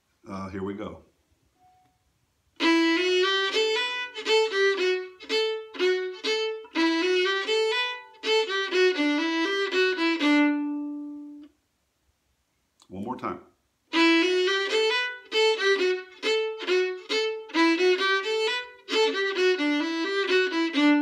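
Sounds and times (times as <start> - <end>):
solo fiddle playing: 2.6 - 11.5, 13.9 - 21.0.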